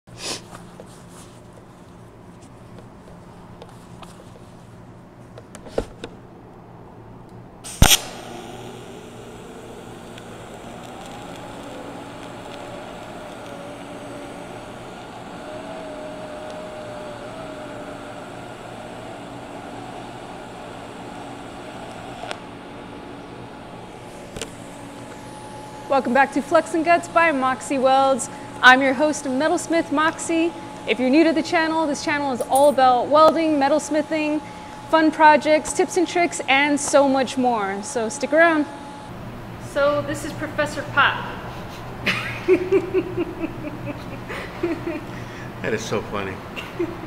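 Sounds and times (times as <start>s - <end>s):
welding arc striking crack: 7.6s - 15.4s
welding arc hissing: 7.6s - 37.2s.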